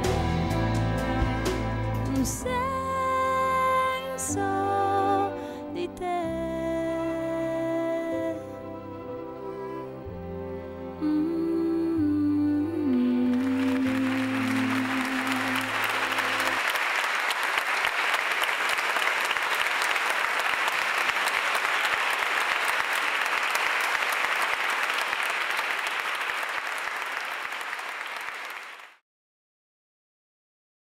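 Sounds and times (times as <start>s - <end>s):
background music: 0.0s - 16.8s
congregation applauding: 13.3s - 29.0s.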